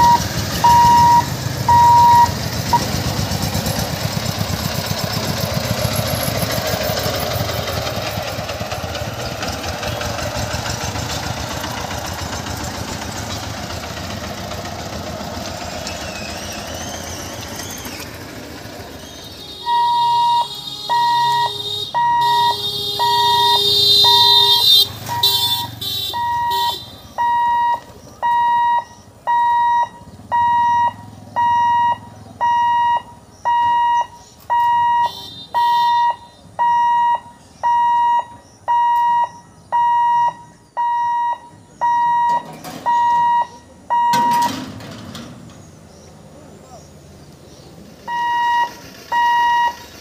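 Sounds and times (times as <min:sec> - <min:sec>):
crossing warning buzzer beeping: 0:00.0 - 0:03.4, 0:19.0 - 0:44.7, 0:48.1 - 0:50.0
barrier clattering down: 0:44.0 - 0:45.7.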